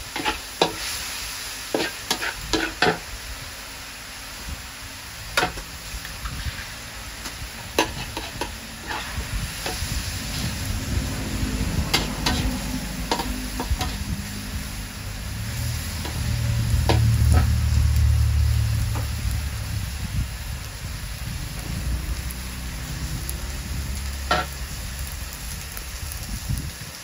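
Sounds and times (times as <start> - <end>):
metal spatula scraping wok: 0.0 - 3.0, 5.4 - 18.0, 21.5 - 25.1
food sizzling: 0.0 - 27.0
vehicle engine rumble: 5.0 - 26.9.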